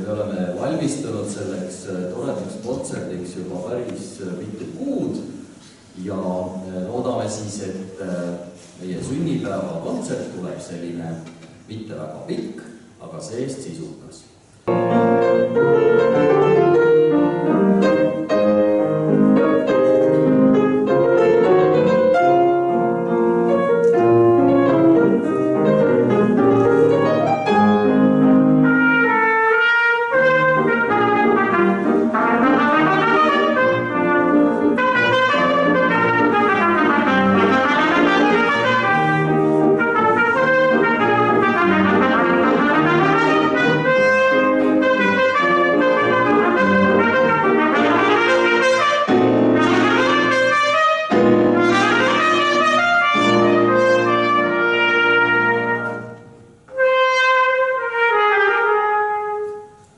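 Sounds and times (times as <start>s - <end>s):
piano accompaniment: 0.0s - 12.6s, 14.6s - 59.9s
trumpet melody: 14.7s - 59.9s.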